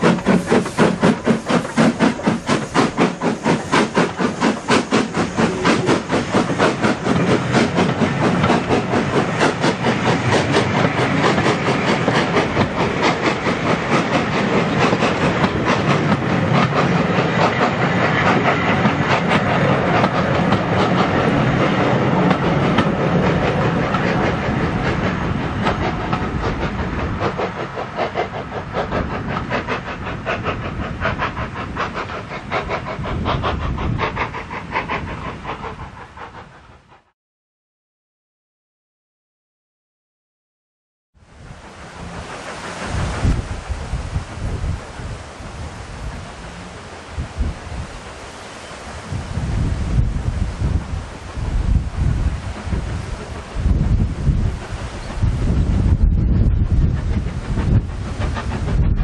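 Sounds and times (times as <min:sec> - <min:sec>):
train wheels clattering over rail joints: 0:00.0 - 0:36.8, 0:50.2 - 0:59.0.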